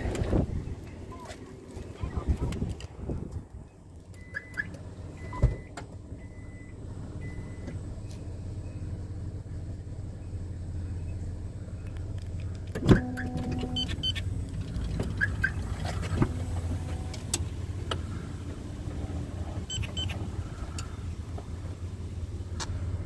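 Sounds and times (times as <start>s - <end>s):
car engine idling: 0.0s - 23.0s
car door and seat clicks: 12.0s - 18.0s.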